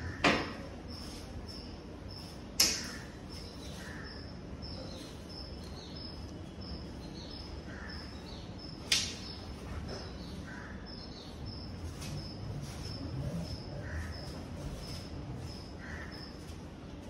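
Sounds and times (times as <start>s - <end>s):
wooden stick crack: 2.6s - 3.0s, 8.8s - 9.3s.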